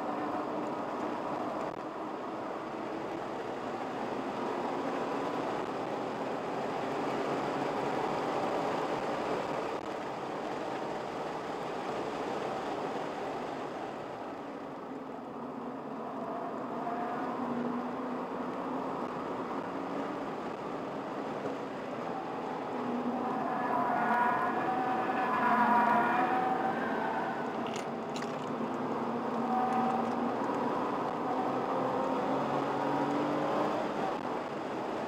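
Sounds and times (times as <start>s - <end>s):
tyre and road noise: 0.0s - 35.0s.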